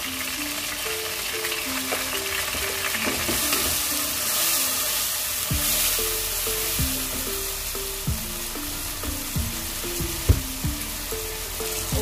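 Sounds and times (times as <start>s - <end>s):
music with held notes: 0.0s - 12.0s
vegetables sizzling in oil: 0.0s - 12.0s
slow low drum beat: 5.5s - 11.1s.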